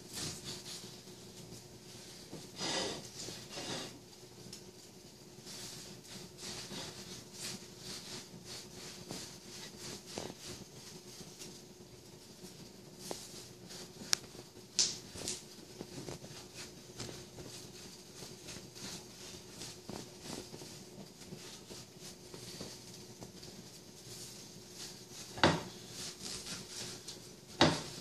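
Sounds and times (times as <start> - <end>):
knife slicing watermelon: 27.6 - 28.0.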